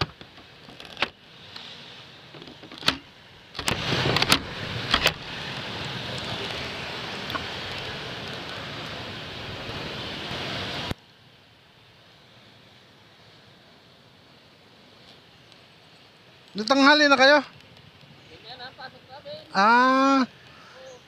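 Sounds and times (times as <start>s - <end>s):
passing vehicles: 1.1s - 11.0s.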